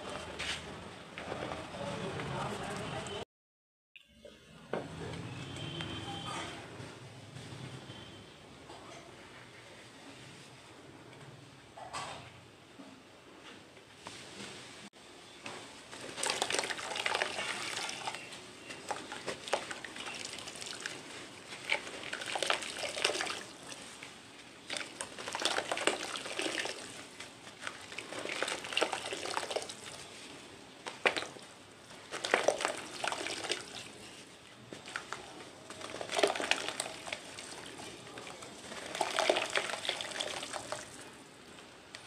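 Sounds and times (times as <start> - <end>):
powder pattering into pot: 15.9 - 30.2, 30.8 - 34.1, 34.7 - 41.1
cement crunching by hand: 30.8 - 31.4, 32.0 - 33.8.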